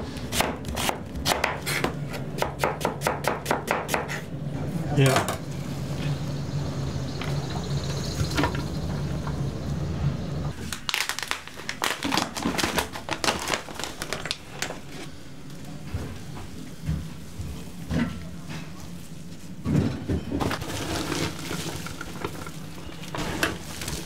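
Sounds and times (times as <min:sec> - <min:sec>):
steady low hum: 0:03.9 - 0:10.5
paper bag crinkling: 0:10.5 - 0:14.8, 0:20.5 - 0:24.0.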